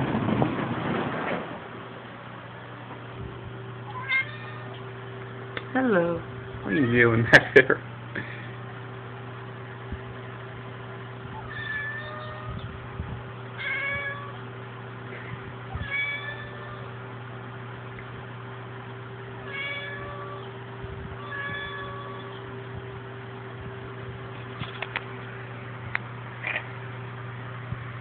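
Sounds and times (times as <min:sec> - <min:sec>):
steady low hum: 0:00.0 - 0:28.0
cat meowing: 0:03.9 - 0:04.8, 0:11.4 - 0:12.6, 0:13.6 - 0:14.4, 0:15.7 - 0:17.0, 0:19.5 - 0:20.5, 0:21.2 - 0:22.4.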